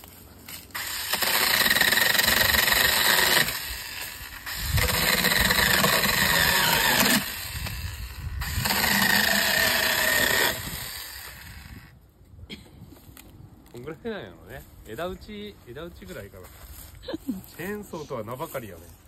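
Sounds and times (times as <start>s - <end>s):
chainsaw cutting wood: 0.0s - 11.9s.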